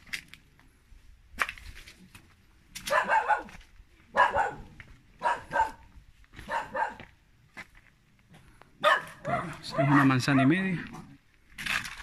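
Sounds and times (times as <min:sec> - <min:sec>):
dog barking: 0:02.8 - 0:07.1, 0:08.8 - 0:11.1.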